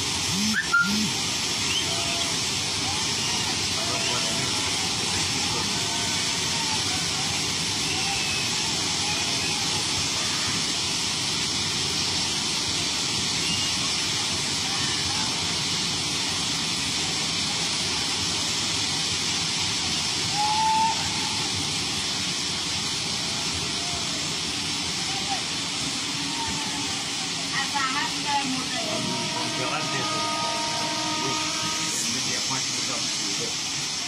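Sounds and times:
heavy rain and floodwater hiss: 0:00.0 - 0:34.0
train ploughing through water: 0:00.0 - 0:34.0.

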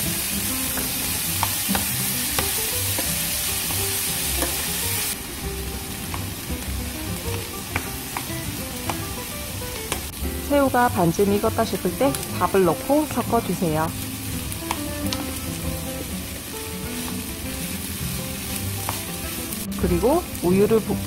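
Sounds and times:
food sizzling in a frying pan: 0:00.0 - 0:21.0
spatula clicking against pan: 0:07.8 - 0:09.1, 0:14.7 - 0:15.2.

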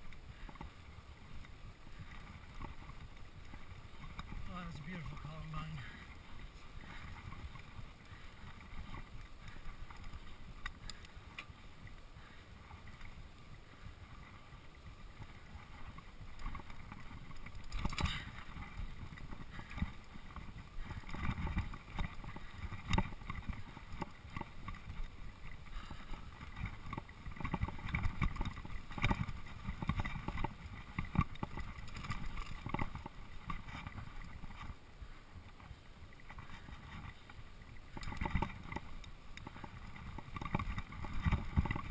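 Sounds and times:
bike tyres rumbling on dirt: 0:00.0 - 0:41.9
bike rattling and knocking: 0:00.3 - 0:14.3, 0:14.9 - 0:34.8, 0:35.5 - 0:41.9
wind noise on microphone: 0:12.9 - 0:41.9.

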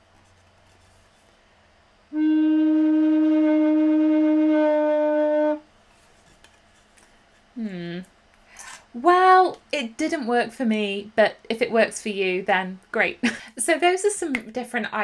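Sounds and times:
recorder playing low warbling note: 0:02.1 - 0:05.6.

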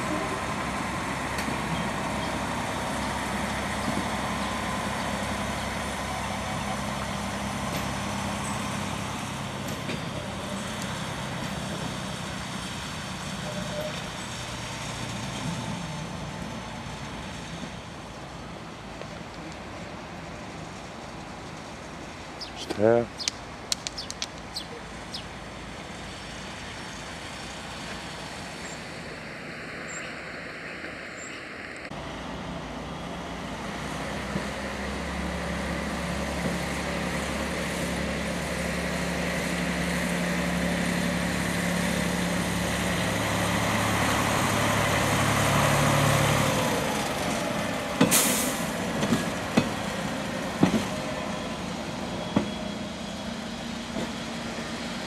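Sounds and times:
diesel engine of rail vehicle: 0:00.0 - 0:55.0
wheels clicking on rails: 0:40.4 - 0:55.0.

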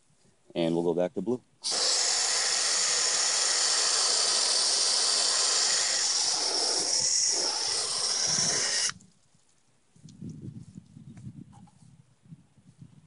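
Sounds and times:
water spraying on plastic: 0:01.6 - 0:09.0.

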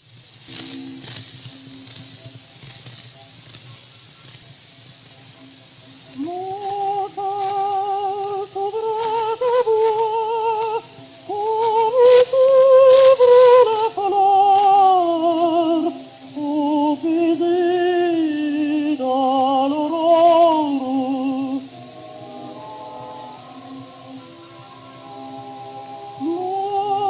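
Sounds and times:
quiet accompaniment: 0:00.0 - 0:27.0
contralto singing operatic line: 0:06.1 - 0:27.0.

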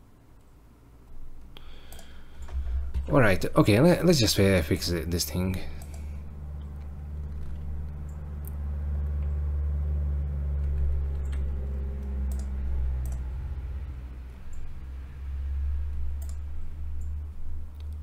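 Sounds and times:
steady low hum: 0:00.0 - 0:18.0
keyboard and mouse clicks: 0:01.4 - 0:03.2, 0:10.6 - 0:13.2, 0:15.9 - 0:16.4.

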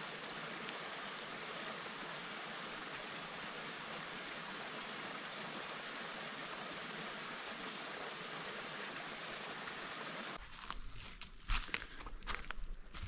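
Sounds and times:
stream water rushing: 0:00.0 - 0:10.4.

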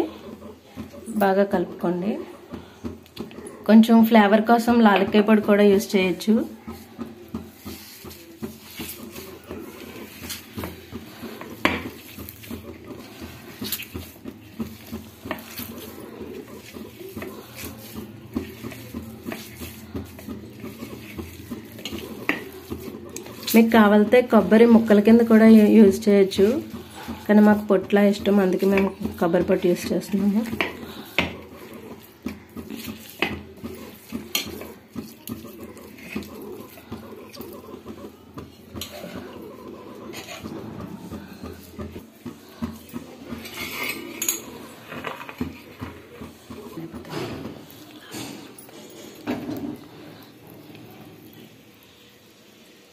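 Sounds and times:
hand squishing sticky dough: 0:02.6 - 0:43.6.

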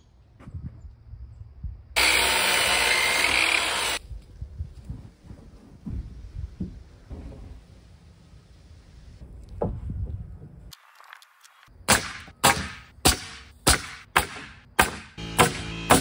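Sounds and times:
power saw cutting wood: 0:02.0 - 0:04.0.

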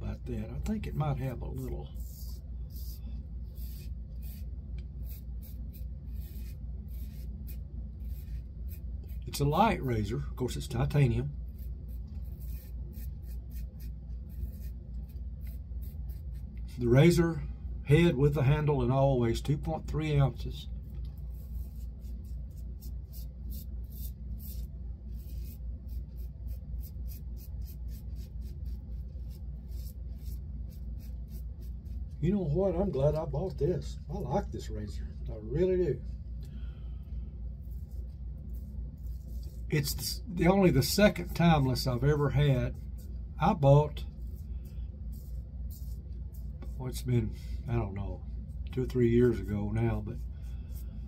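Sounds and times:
steady low hum: 0:00.0 - 0:51.0
razor scraping stubble: 0:00.5 - 0:09.6, 0:11.5 - 0:17.0, 0:20.9 - 0:33.3.

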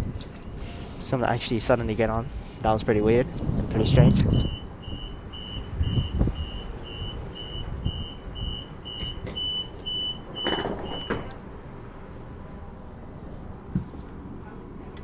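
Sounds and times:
low steady rumble: 0:00.0 - 0:15.0
train doors sliding shut: 0:03.4 - 0:11.4
train door warning beeps: 0:04.3 - 0:11.3.

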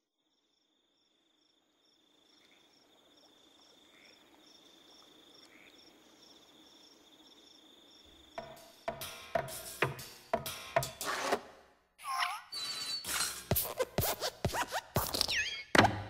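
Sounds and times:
steady high insect trill: 0:00.0 - 0:10.8
crickets chirping: 0:00.0 - 0:11.0.

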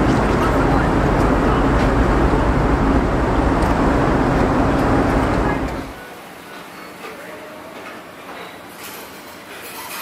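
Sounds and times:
engine rumble: 0:00.0 - 0:06.0.

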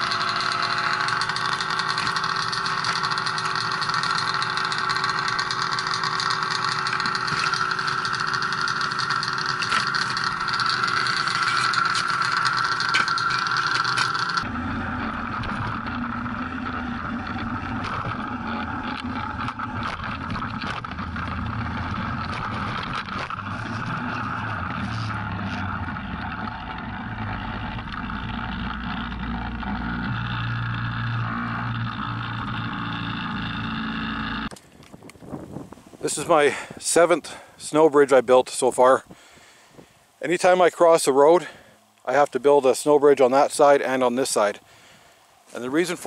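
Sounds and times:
snowmobile engine running: 0:00.0 - 0:34.5.

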